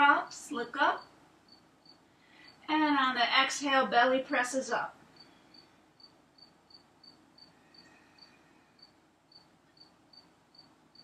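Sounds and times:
faint cricket chirping: 1.0 - 2.7, 5.1 - 11.0.

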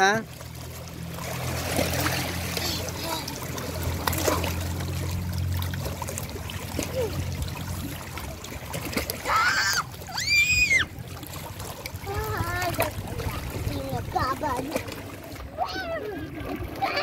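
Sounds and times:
seawater splashing and sloshing: 0.0 - 17.0
child calling out: 15.6 - 17.0.

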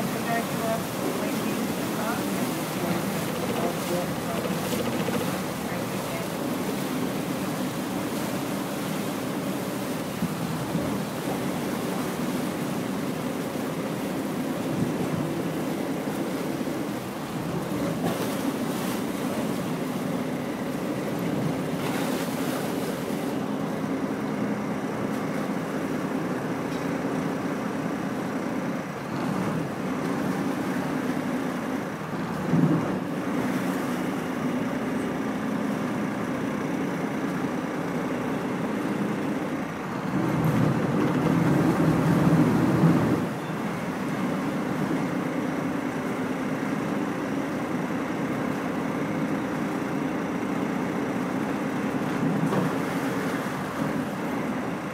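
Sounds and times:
ferry engines droning: 0.0 - 54.9
water rushing: 0.0 - 54.9.

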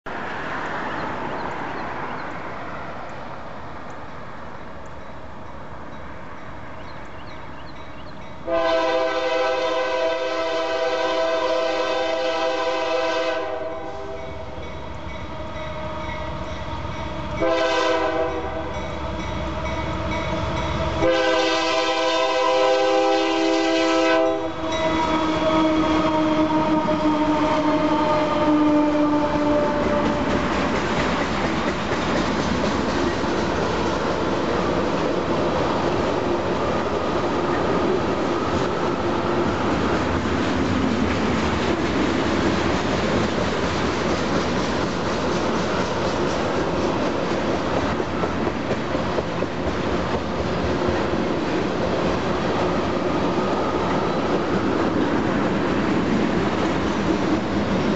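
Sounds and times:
train engines and wheels rumbling: 0.0 - 57.9
locomotive horn blasts: 8.4 - 14.6, 17.4 - 20.2, 21.0 - 30.3.

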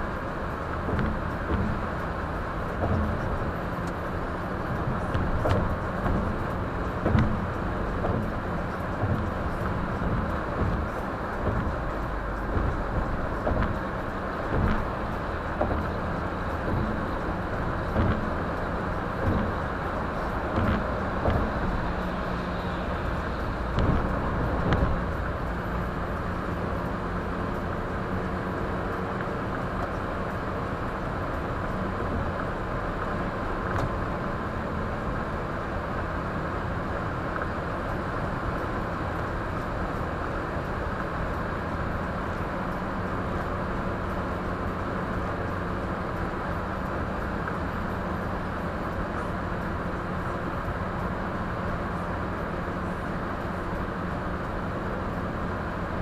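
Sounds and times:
low engine hum: 0.0 - 56.0
tyre and road noise: 0.0 - 56.0
short thumps and knocks: 0.8 - 2.0, 2.7 - 4.0, 4.7 - 22.2, 23.3 - 26.0.

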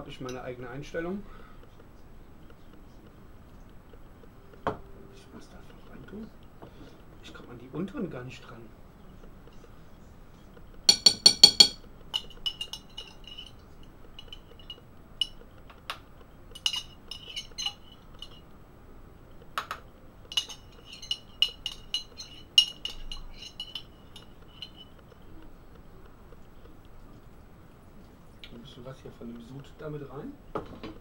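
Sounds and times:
metal spoon clinking in glass jar: 10.9 - 13.6, 16.6 - 18.4, 20.3 - 24.9.

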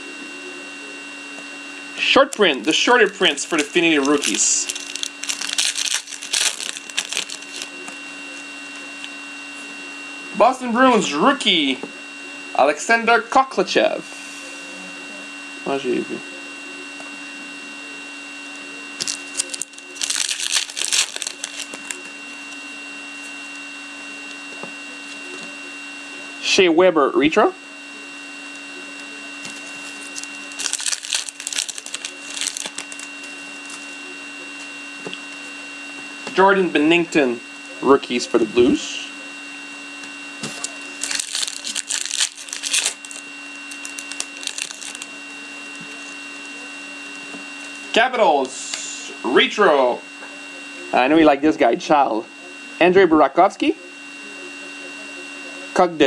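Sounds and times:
electrical hum: 0.0 - 56.0
foil pack crinkling: 2.0 - 7.8, 19.0 - 22.1, 29.4 - 33.8, 40.4 - 45.1
cards rustling: 2.2 - 7.8, 19.0 - 22.1, 29.4 - 33.8, 40.4 - 45.1.

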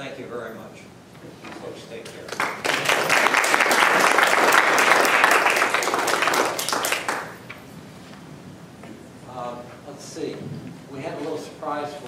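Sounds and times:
audience applauding: 2.2 - 7.5.

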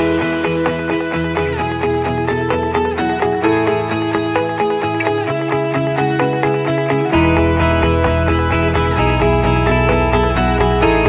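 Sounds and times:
bass line: 0.0 - 11.0
guitar music: 0.0 - 11.0
steady beat with high ticks: 7.2 - 11.0.

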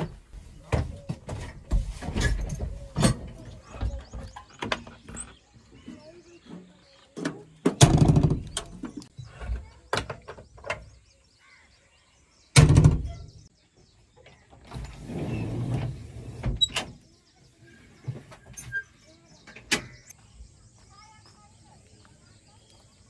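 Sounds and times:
short scraping rustle: 14.7 - 16.4.

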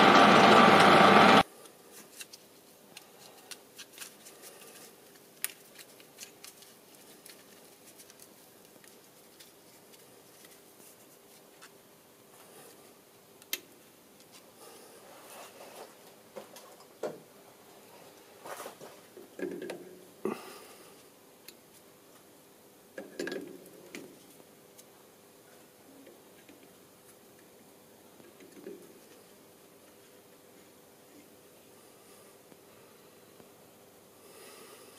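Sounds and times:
metal lathe whining: 0.0 - 1.4
clicks and rustles of handling: 1.6 - 11.8.

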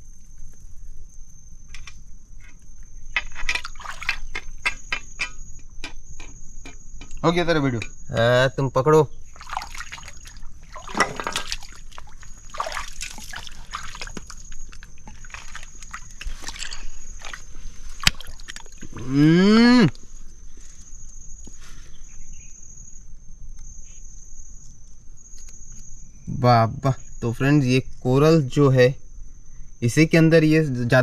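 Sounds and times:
high insect whine: 0.0 - 31.0
water sloshing and splashing: 3.5 - 4.5, 9.2 - 19.0.

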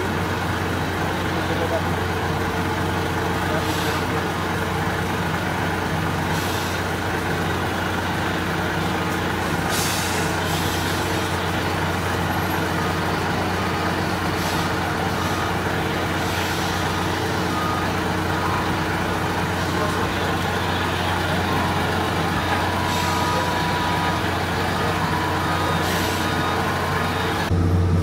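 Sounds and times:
truck diesel engine running: 0.0 - 28.0
air brake hisses: 9.6 - 11.1.

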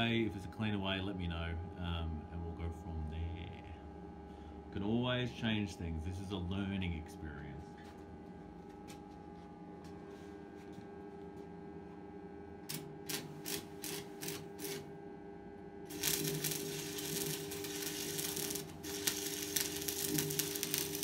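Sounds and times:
arc welder crackling: 12.6 - 15.0, 15.8 - 21.0.

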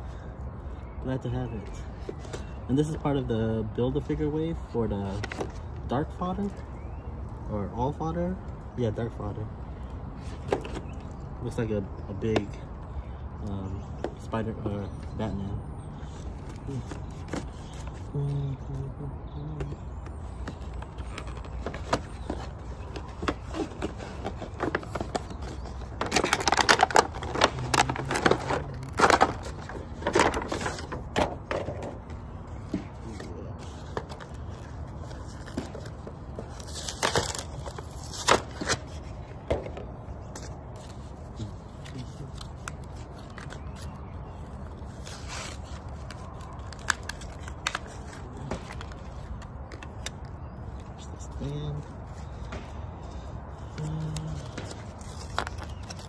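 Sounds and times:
plastic packaging crinkling and tearing: 20.2 - 31.9, 32.5 - 39.4, 40.3 - 52.5, 53.1 - 56.0.

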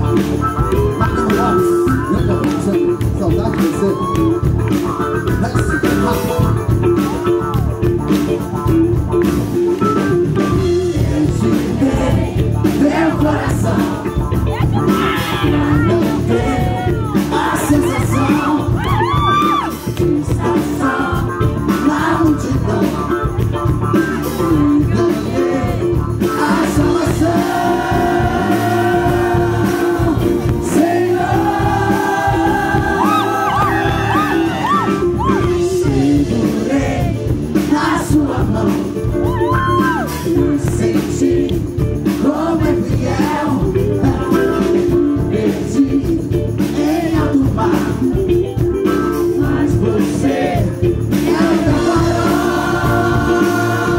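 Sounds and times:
man singing lead vocals: 0.0 - 7.8, 10.3 - 53.9
pop-rock band playing live: 0.0 - 53.9.

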